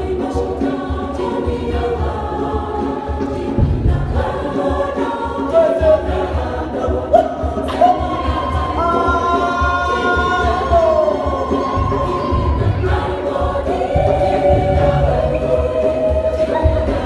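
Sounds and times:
choir singing: 0:00.0 - 0:17.0
low pulsing beat: 0:00.0 - 0:17.0.

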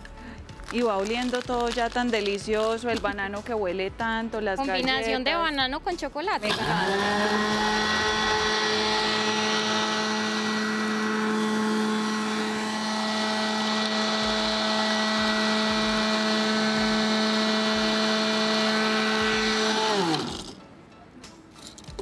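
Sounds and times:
electric food chopper grinding: 0:06.4 - 0:20.6.

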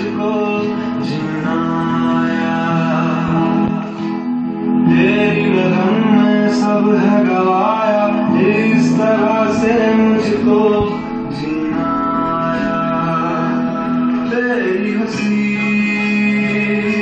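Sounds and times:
song with sung vocals: 0:00.0 - 0:17.0.

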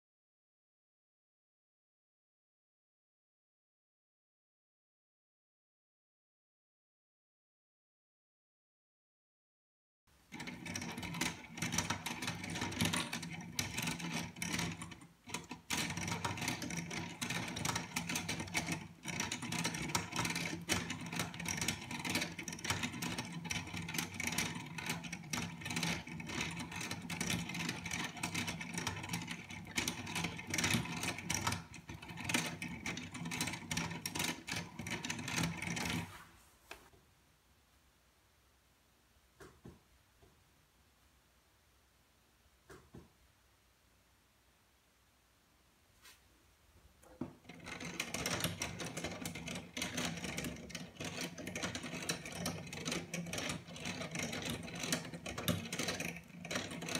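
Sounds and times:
plastic gears clicking and whirring: 0:10.3 - 0:36.1, 0:47.0 - 0:56.9.

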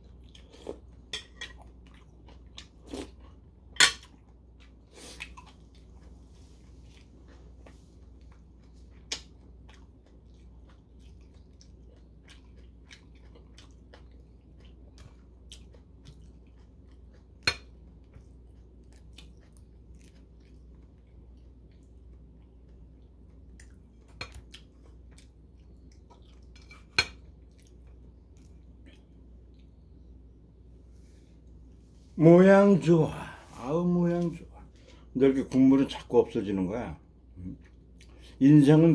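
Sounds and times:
person chewing: 0:00.0 - 0:30.1, 0:37.4 - 0:38.4.

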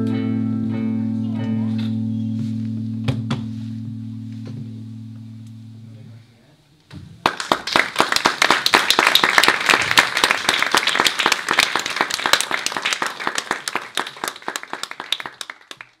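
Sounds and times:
audience applauding: 0:07.2 - 0:16.0.

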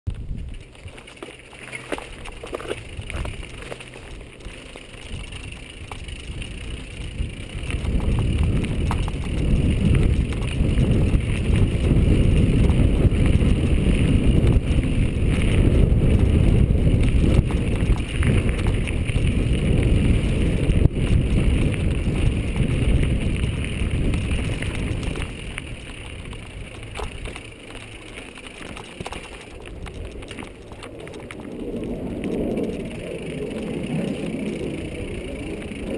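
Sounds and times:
low rumble: 0:00.1 - 0:28.2
bike rattling: 0:00.1 - 0:35.9
tyres rolling on dirt: 0:00.1 - 0:35.9.

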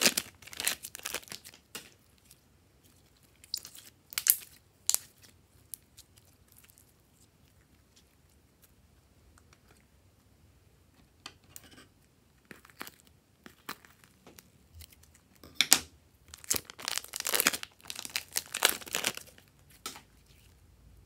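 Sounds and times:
slime crackling and clicking: 0:03.4 - 0:05.3.

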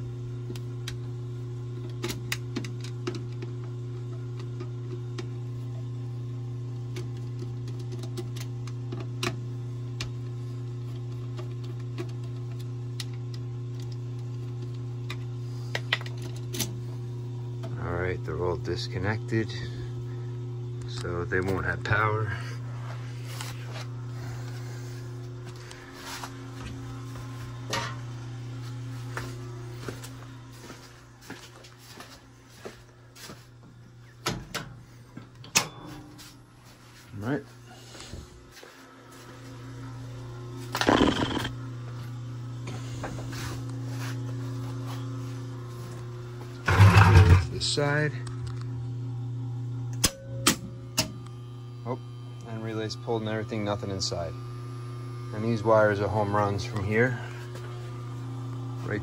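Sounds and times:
low electrical hum: 0:00.0 - 0:59.0
footsteps: 0:28.6 - 0:33.5, 0:37.8 - 0:39.5
circuit breaker clicks: 0:49.9 - 0:51.4.

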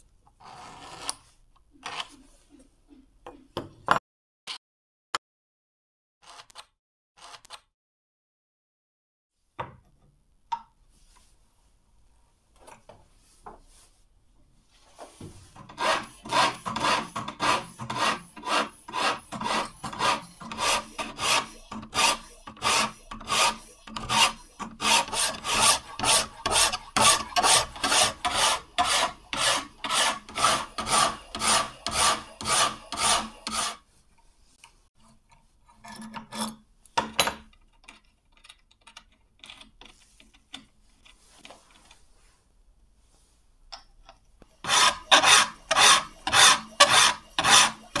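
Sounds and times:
hand file stroking steel blade: 0:15.6 - 0:33.8, 0:44.6 - 0:48.0.

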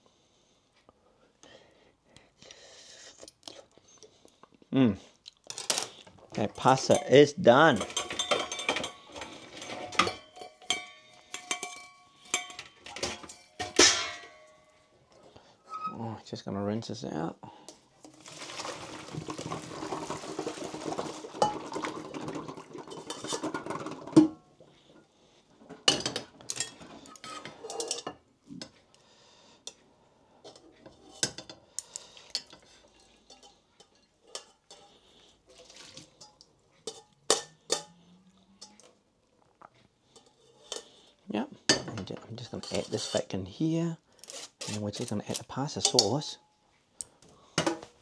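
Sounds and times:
pots and utensils clinking: 0:05.5 - 0:14.8, 0:18.0 - 0:28.8, 0:30.4 - 0:39.0, 0:40.1 - 0:43.3, 0:44.3 - 0:46.5
kitchen tap running: 0:18.0 - 0:24.1.

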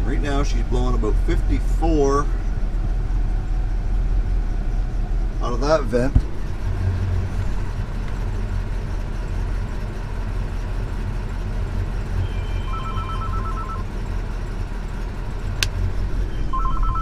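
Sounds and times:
truck engine idling: 0:00.0 - 0:17.0
mobile phone ringing: 0:12.6 - 0:13.9, 0:16.3 - 0:17.0.

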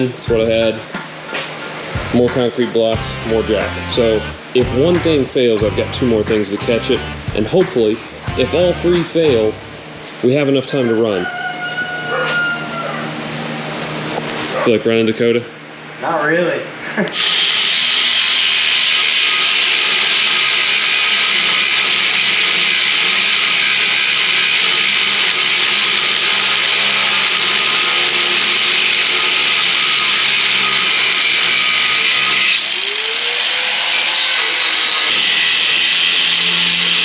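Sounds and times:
angle grinder cutting steel: 0:02.1 - 0:09.8, 0:17.1 - 0:37.0.

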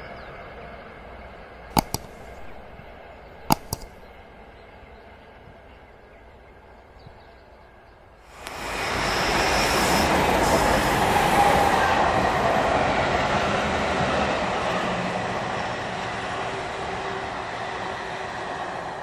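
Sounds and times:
steam train passing: 0:08.3 - 0:19.0.

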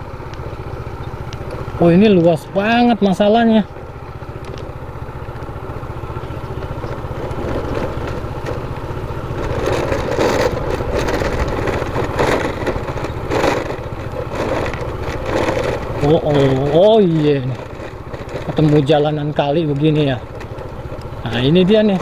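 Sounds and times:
motorcycle engine running: 0:00.0 - 0:22.0
tyre and road noise: 0:00.0 - 0:22.0.

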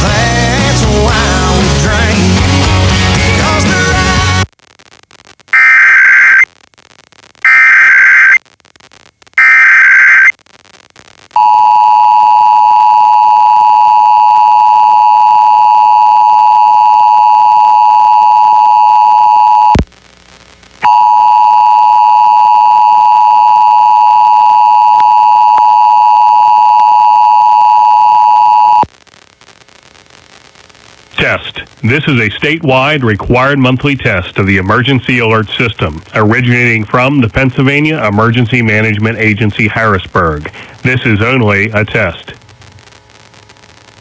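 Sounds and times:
screechy digital data bursts: 0:05.6 - 0:06.4, 0:07.4 - 0:08.4, 0:09.4 - 0:10.3.

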